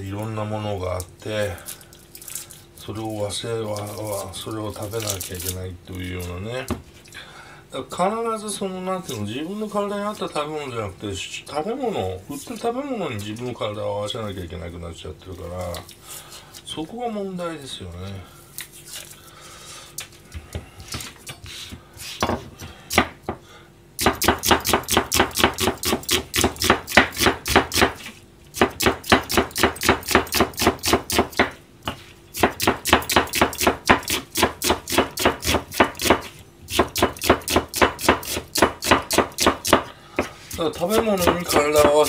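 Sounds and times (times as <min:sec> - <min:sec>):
knife chopping on plastic board: 0:21.7 - 0:23.4, 0:24.0 - 0:42.0.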